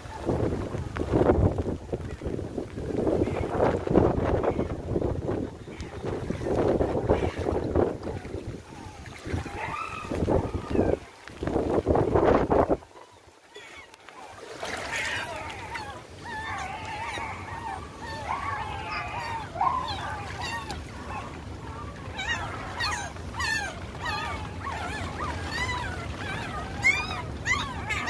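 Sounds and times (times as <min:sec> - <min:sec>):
puppy whimpering and yelping: 0:14.9 - 0:28.0.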